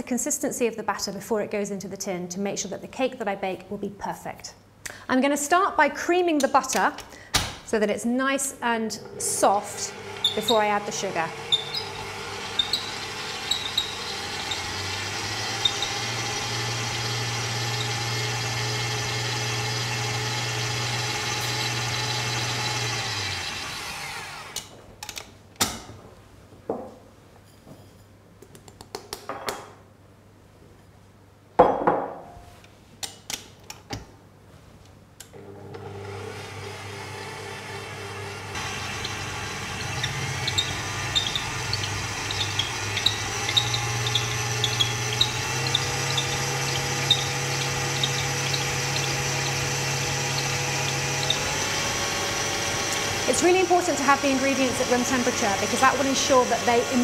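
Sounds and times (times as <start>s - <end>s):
electric stand mixer running: 9.0s - 24.6s, 35.4s - 57.0s.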